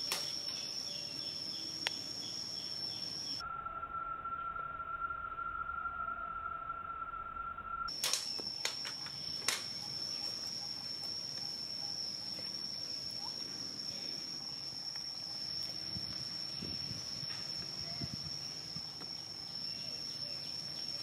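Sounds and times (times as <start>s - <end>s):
high-pitched insect drone: 0.0s - 21.0s
sharp clicks: 7.9s - 9.7s.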